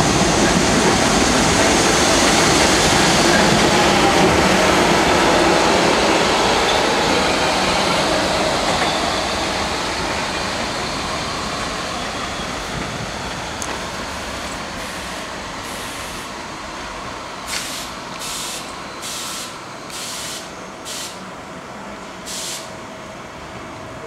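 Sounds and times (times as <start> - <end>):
subway train rolling and braking: 0.0 - 24.0
air brake hisses: 17.5 - 21.3, 22.3 - 22.8.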